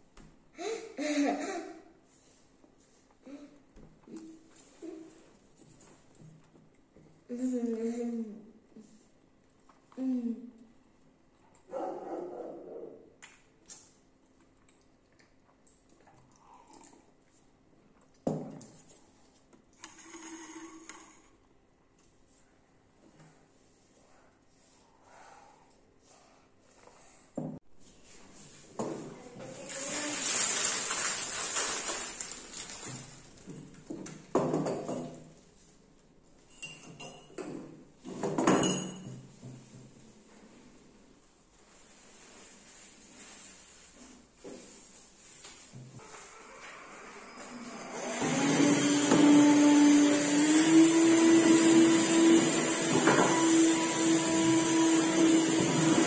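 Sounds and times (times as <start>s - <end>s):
spoon clinking against mug: 36.5s - 37.4s.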